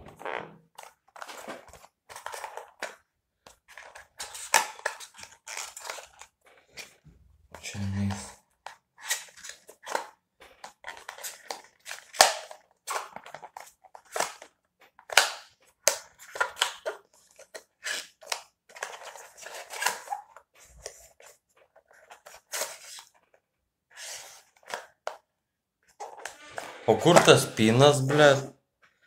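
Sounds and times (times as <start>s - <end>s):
cardboard rustling and crinkling: 0.0s - 7.1s, 7.8s - 23.5s.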